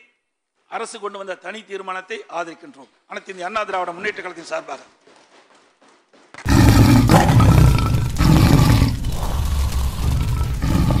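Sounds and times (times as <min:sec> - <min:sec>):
tiger roaring: 0:06.5 - 0:11.0.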